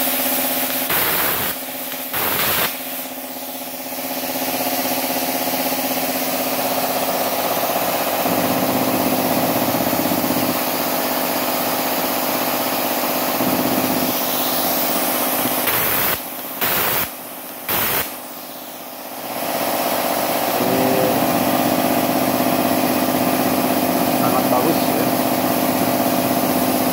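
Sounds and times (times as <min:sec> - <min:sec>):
plasma cutting arc hiss: 0:00.0 - 0:03.8, 0:13.2 - 0:21.8
air compressor running: 0:00.0 - 0:26.9.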